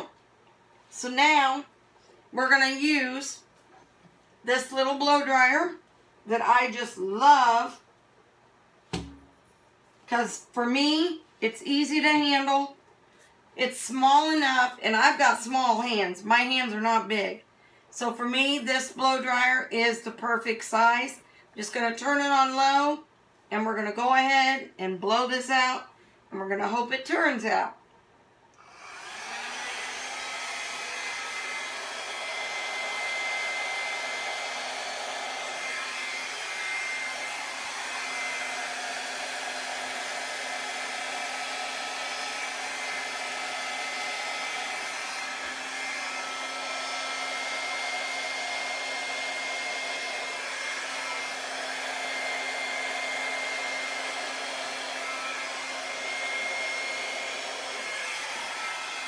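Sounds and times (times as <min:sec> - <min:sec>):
hair dryer running: 0:09.0 - 0:09.2, 0:28.6 - 0:59.0.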